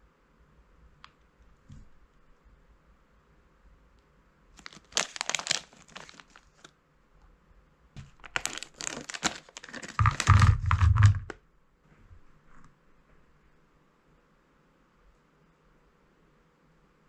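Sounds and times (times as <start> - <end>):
plastic snack bag crinkling: 4.6 - 6.7, 8.0 - 11.4
gummies thumping onto plate: 8.0 - 11.4.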